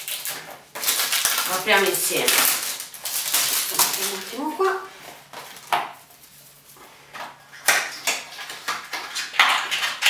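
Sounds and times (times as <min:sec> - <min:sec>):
cardboard carton crinkling: 0:00.0 - 0:05.7.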